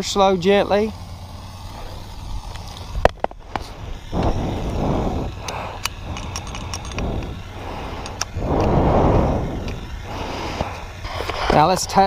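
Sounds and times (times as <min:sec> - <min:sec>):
wind buffeting microphone: 0:02.0 - 0:12.0
sharp clicks: 0:02.4 - 0:08.8.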